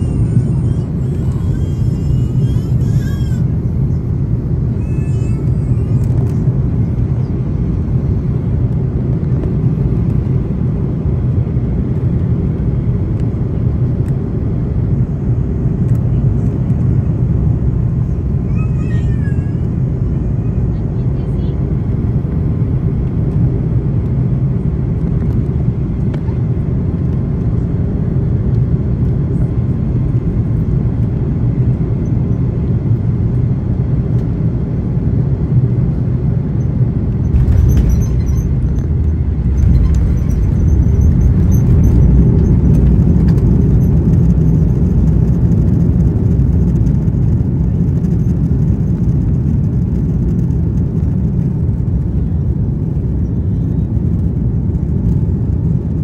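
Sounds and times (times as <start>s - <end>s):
jet engine and airflow rumble: 0.0s - 56.0s
thin high whine: 37.3s - 44.8s.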